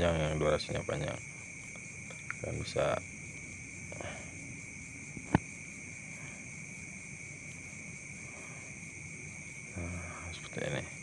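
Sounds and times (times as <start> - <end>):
faint high-pitched ringing: 0.0 - 11.0.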